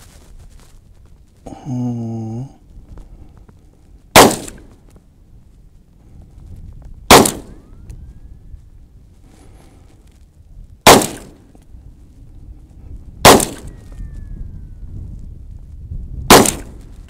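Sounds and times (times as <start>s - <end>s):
pistol shots: 4.1s - 4.7s, 7.1s - 7.6s, 10.8s - 11.4s, 13.2s - 13.7s, 16.3s - 16.8s.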